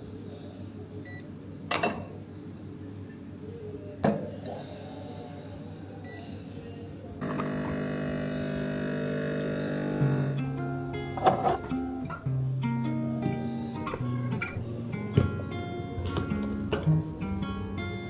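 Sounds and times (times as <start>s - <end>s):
steady low hum: 0.0s - 18.0s
acoustic guitar music: 7.2s - 18.0s.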